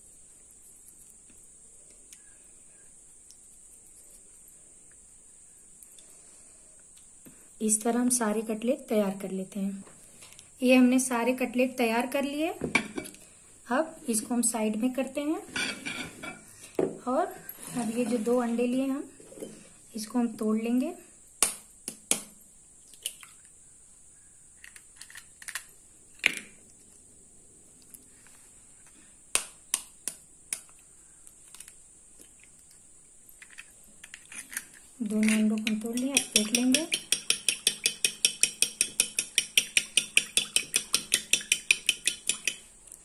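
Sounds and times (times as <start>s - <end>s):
eggs cracking against a bowl: 33.4s - 42.7s.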